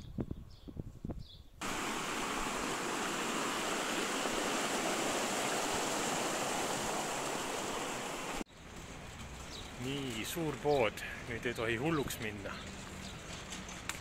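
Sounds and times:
stream rushing over rocks: 0:01.6 - 0:08.4.

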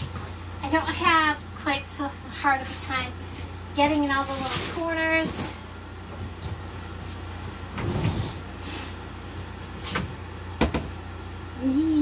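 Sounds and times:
steady low hum: 0:00.0 - 0:12.0
vacuum hose knocking on furniture: 0:10.6 - 0:11.0.

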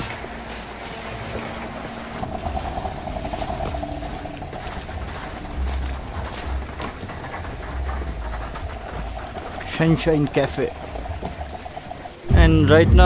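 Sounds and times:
melting snow dripping and trickling: 0:00.0 - 0:12.3.

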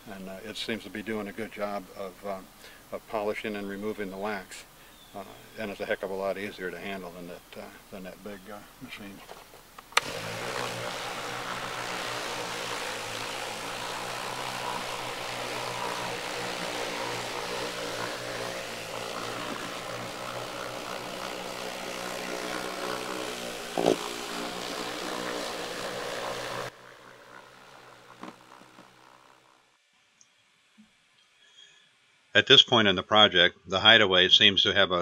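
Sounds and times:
orbit polisher running: 0:09.8 - 0:29.6.

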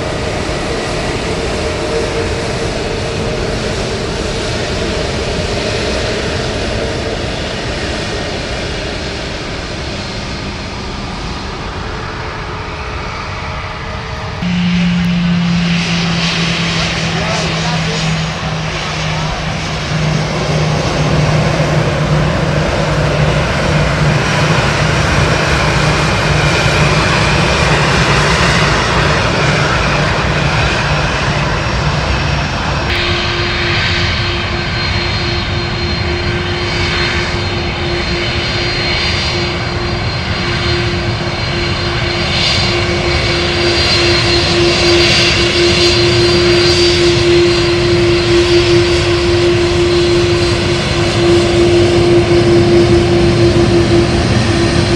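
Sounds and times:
jet engines humming at taxi power: 0:00.0 - 0:54.9
faint high whine: 0:14.4 - 0:23.3.

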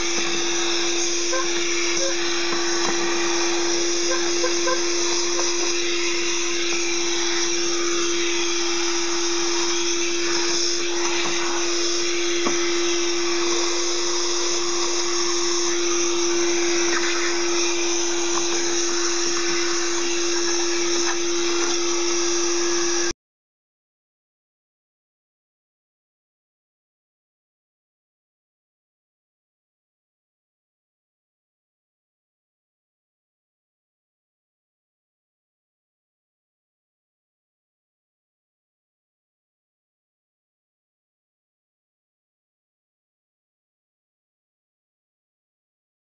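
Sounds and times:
vacuum cleaner sucking debris: 0:00.0 - 0:23.1.

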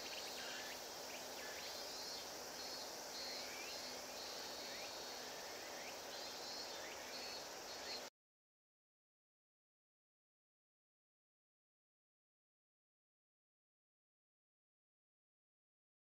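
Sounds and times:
insects droning: 0:00.0 - 0:08.1.

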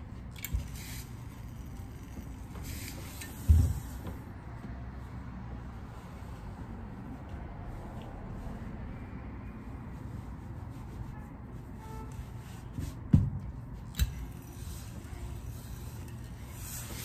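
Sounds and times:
hands rubbing shirt fabric: 0:09.6 - 0:13.9.

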